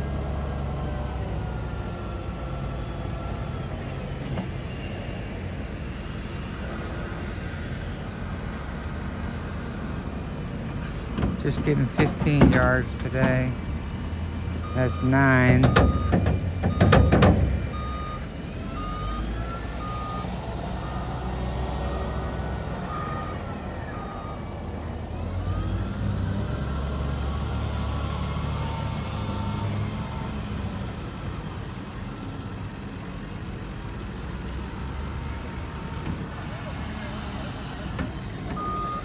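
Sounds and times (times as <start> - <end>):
diesel engine running: 0.0 - 39.0
reversing alarm beeping: 14.6 - 31.8, 38.5 - 39.0.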